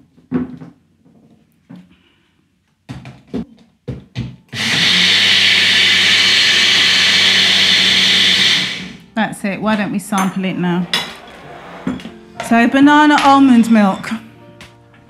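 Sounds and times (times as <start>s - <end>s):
blender motor running: 4.5s - 9.0s.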